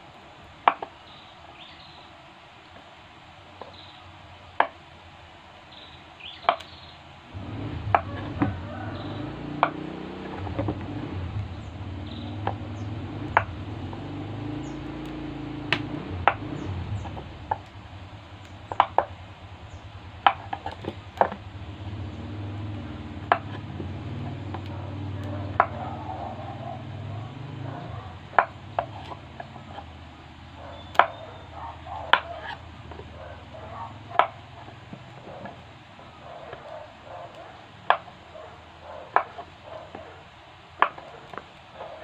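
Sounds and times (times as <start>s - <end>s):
low hum: 7.3s - 34.2s.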